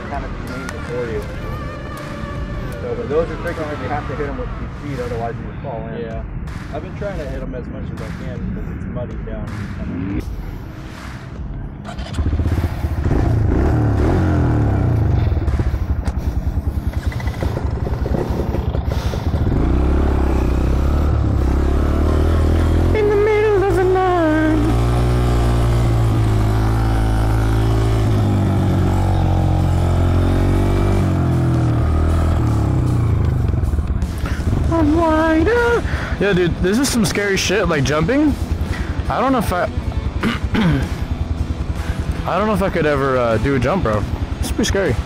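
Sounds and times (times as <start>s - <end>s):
motorcycle engine riding: 11.2s - 45.0s.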